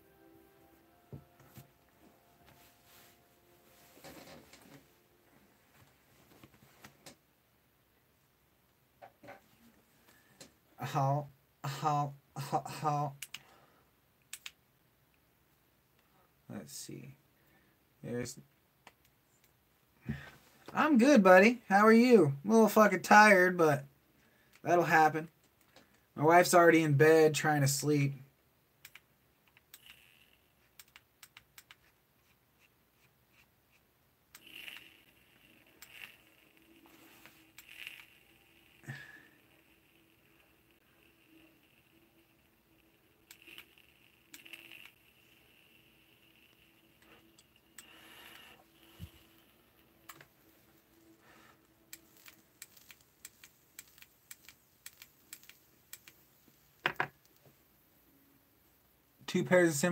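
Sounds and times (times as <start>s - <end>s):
faint irregular clicking: 14.2s - 15.2s, 28.8s - 31.9s, 51.9s - 57.6s
soft hiss of vape draw: 32.2s - 58.2s.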